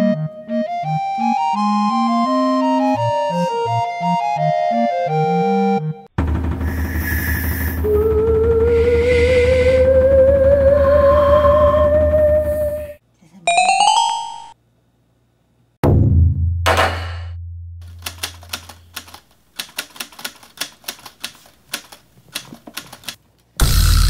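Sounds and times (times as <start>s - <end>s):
loud music with drum roll: 6.2s - 9.2s
typewriter key clicks: 17.8s - 23.2s.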